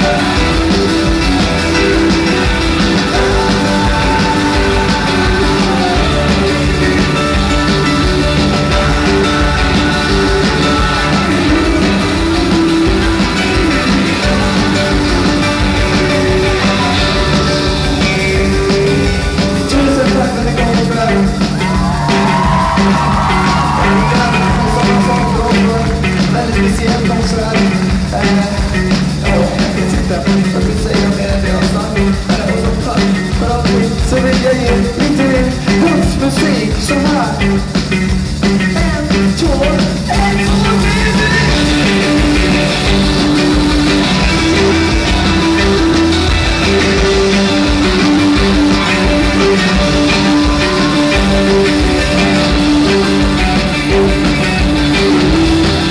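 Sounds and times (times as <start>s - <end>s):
male singer: 0.0s - 0.8s, 2.8s - 37.8s, 38.6s - 43.0s
live rock band playing: 0.0s - 55.9s.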